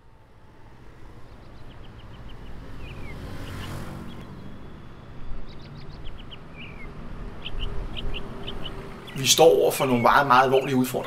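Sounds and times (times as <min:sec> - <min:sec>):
low traffic rumble: 0:00.0 - 0:11.0
small birds chirping: 0:00.8 - 0:11.0.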